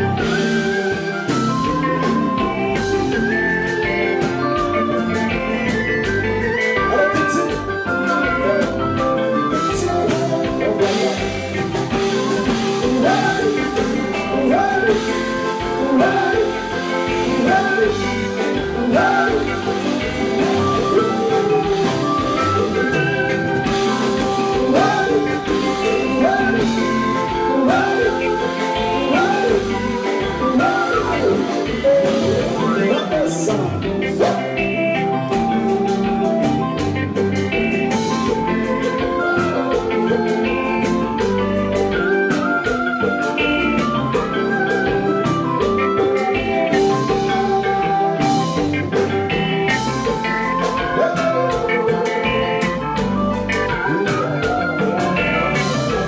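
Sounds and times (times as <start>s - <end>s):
man singing: 0.0s - 37.2s, 49.7s - 56.0s
electric guitar: 0.0s - 56.0s
keyboards: 0.0s - 56.0s
live band playing: 0.0s - 56.0s.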